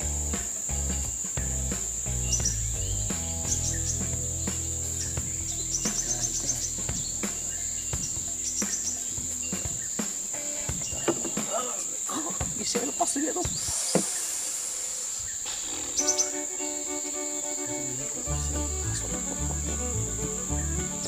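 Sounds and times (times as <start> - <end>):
low background music: 0.0 - 11.8, 16.0 - 21.0
insects droning: 0.0 - 21.0.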